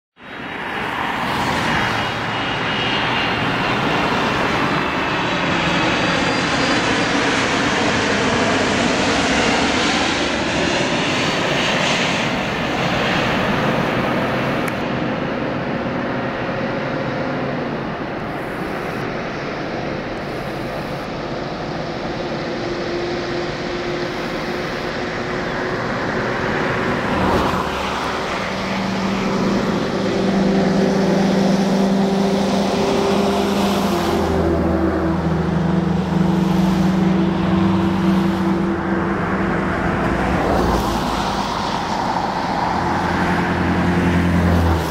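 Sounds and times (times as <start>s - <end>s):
jet engines roaring: 0.2s - 44.9s.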